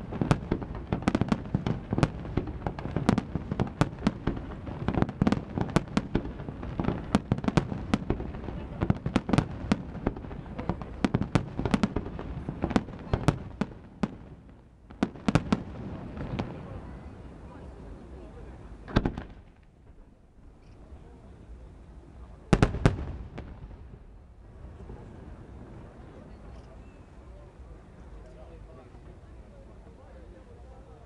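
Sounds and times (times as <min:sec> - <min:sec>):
fireworks bangs: 0:00.0 - 0:17.3, 0:18.8 - 0:20.1, 0:22.5 - 0:25.2.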